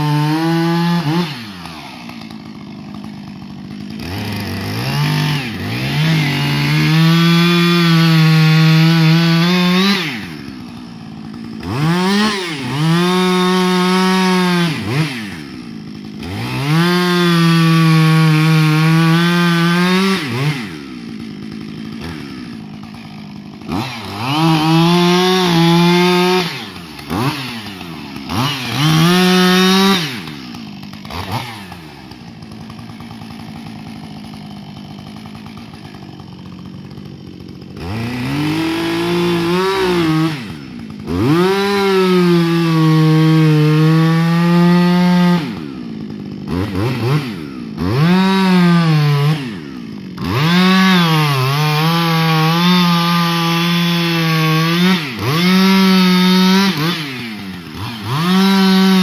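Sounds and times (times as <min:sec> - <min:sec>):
chainsaw cutting wood: 0:00.0 - 0:59.0.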